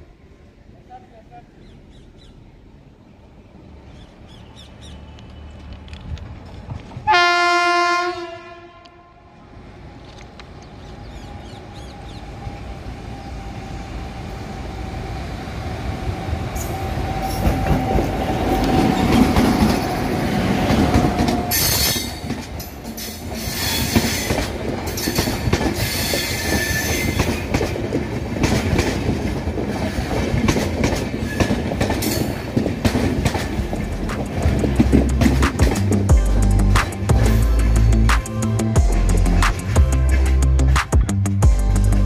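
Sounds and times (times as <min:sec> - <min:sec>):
steady locomotive tone: 0:00.0 - 0:42.0
wheel and rail rumble: 0:00.0 - 0:42.0
high wheel squeal: 0:25.8 - 0:27.2.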